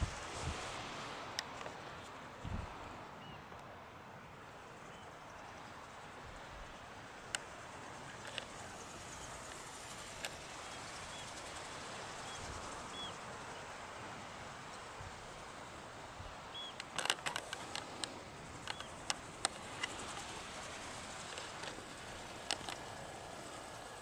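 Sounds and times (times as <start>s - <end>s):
steady hiss: 0.0s - 3.4s, 4.2s - 24.0s
sharp clicks and ticks: 9.4s - 11.2s, 16.8s - 23.2s.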